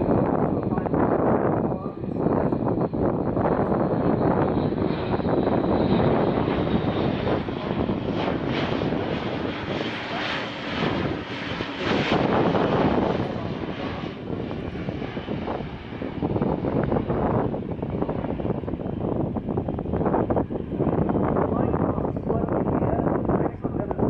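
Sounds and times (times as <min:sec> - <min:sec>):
turboprop aircraft droning past: 0:00.0 - 0:24.0.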